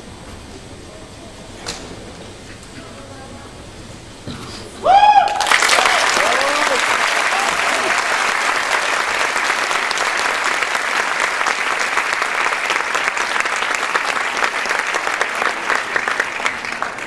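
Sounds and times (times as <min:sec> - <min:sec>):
audience applauding: 0:05.0 - 0:17.0.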